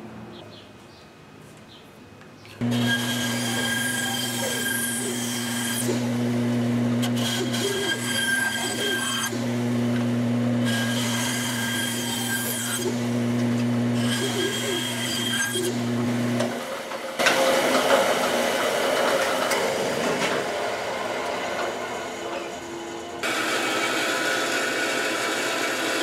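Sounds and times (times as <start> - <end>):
bandsaw blade cutting wood: 2.6 - 20.5
bandsaw motor hum: 2.6 - 26.0.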